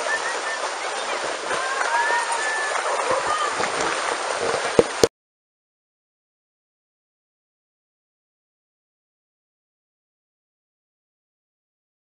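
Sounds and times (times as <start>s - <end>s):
distant crowd hubbub: 0.0s - 4.4s
water splashing under wading feet: 0.0s - 5.1s.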